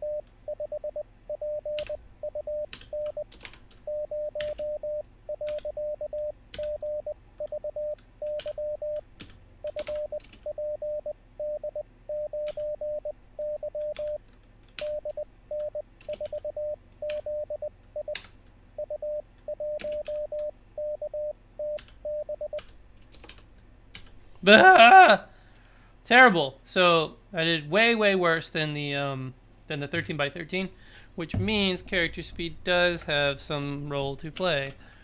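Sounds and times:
morse code tone: 0.0s - 3.2s, 3.9s - 9.0s, 9.7s - 14.2s, 18.8s - 22.6s
computer keyboard keystrokes: 1.7s - 2.0s, 2.7s - 3.8s, 4.4s - 4.7s, 5.4s - 5.7s, 8.3s - 10.4s, 12.4s - 12.7s, 13.8s - 15.0s, 15.6s - 16.4s, 17.1s - 17.3s, 18.1s - 18.4s, 19.8s - 20.5s, 21.7s - 24.2s.

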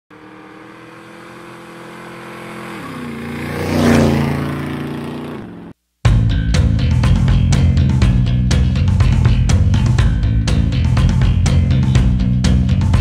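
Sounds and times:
motorcycle engine passing by: 0.1s - 5.8s
music with drum beat: 6.0s - 13.0s.

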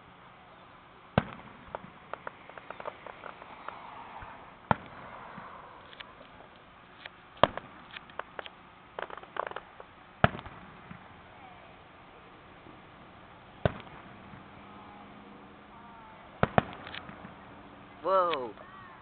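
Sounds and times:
firework shells booming: 1.1s - 6.5s, 7.4s - 11.3s, 12.6s - 15.7s, 16.3s - 18.6s
firework pops and crackles: 1.1s - 11.3s, 13.6s - 14.6s, 16.4s - 17.4s.

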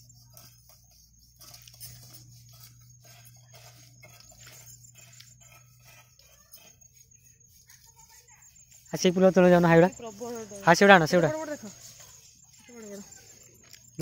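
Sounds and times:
high insect drone: 0.0s - 14.0s
leaves and stems rustling: 7.4s - 14.0s.

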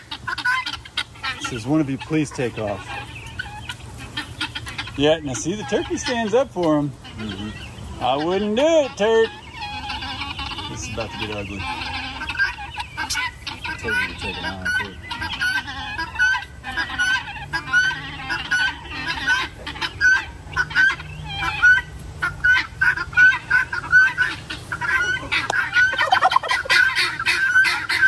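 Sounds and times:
guinea fowl and turkeys calling: 0.0s - 28.0s.

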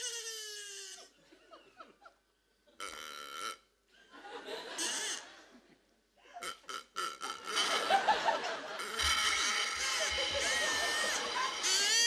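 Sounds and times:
audience laughter: 4.1s - 5.8s, 7.5s - 12.0s
comic noises from stage: 7.2s - 12.0s.

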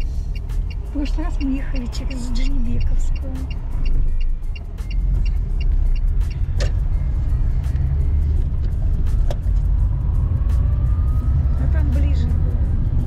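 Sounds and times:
car cabin rumble: 0.0s - 9.8s
music playing: 0.0s - 13.0s.

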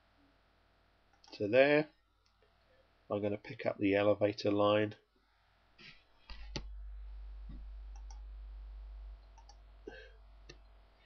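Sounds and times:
low steady hum: 0.0s - 11.0s
computer mouse clicking: 7.5s - 8.2s, 9.3s - 9.6s.

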